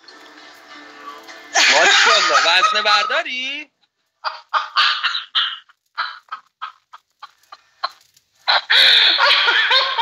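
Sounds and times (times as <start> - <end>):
gasping breathless laughter: 8.5 - 10.0.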